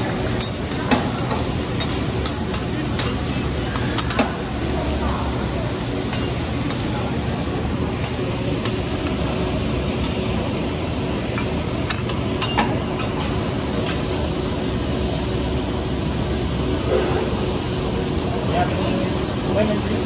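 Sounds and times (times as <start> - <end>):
vegetables sizzling on a griddle: 0.0 - 20.0
metal utensils clicking on griddle: 0.3 - 5.0, 6.1 - 6.9.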